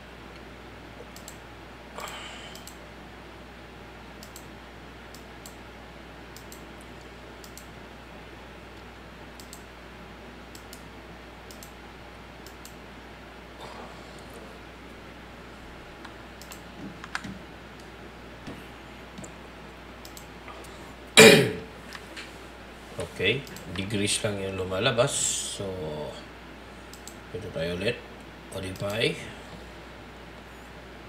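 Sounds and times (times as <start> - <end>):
steady low hum: 0.0 - 31.0
computer mouse and keyboard clicks: 1.0 - 1.4, 2.0 - 2.8, 4.2 - 4.5, 6.4 - 6.7, 7.4 - 7.7, 9.4 - 9.7, 11.5 - 11.8, 16.0 - 18.6, 20.0 - 20.6, 26.9 - 27.2.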